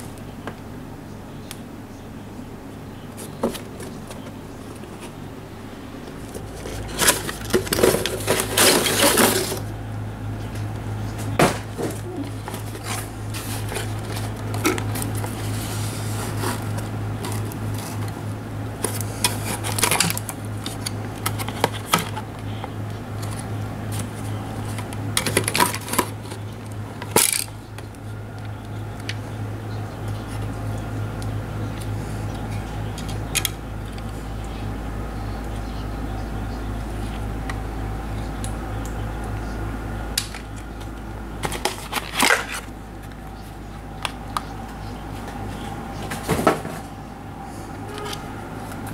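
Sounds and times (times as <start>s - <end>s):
steady low hum: 0.0s - 48.9s
plastic scraping on cardboard: 11.4s - 18.2s, 18.8s - 22.3s.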